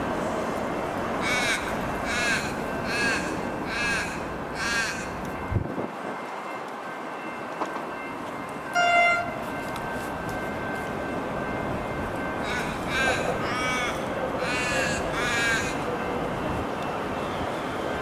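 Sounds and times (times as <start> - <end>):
crow cawing: 1.2 - 5.2, 12.4 - 15.8.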